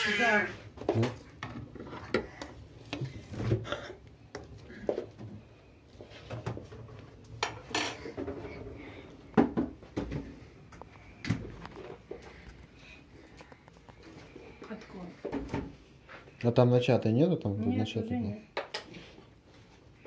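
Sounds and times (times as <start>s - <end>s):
kitchen knocks and clatters: 0.7s - 5.4s, 6.2s - 10.5s, 15.2s - 15.8s.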